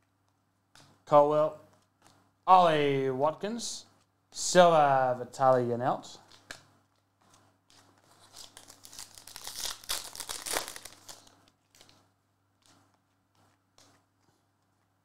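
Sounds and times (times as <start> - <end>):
plastic wrapper crinkling: 6.2 - 12.1.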